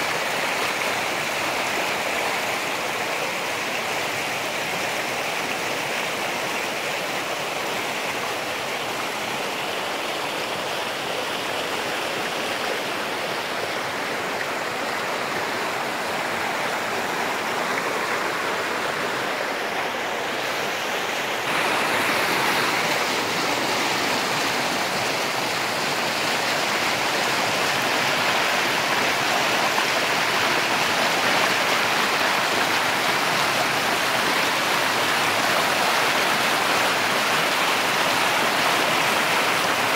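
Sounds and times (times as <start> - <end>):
river rushing over rocks: 0.0 - 39.9.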